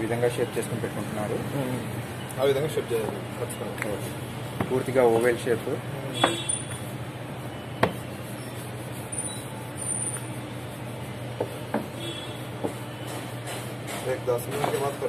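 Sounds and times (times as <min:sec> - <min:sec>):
rolling pin knocking on stone: 0:04.6 - 0:04.8, 0:06.2 - 0:06.5, 0:07.8 - 0:08.0, 0:11.4 - 0:11.9.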